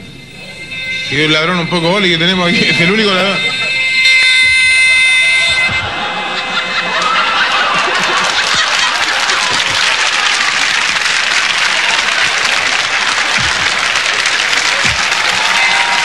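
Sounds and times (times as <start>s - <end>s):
audience laughing: 5.7s - 16.0s
audience applauding: 5.8s - 16.0s.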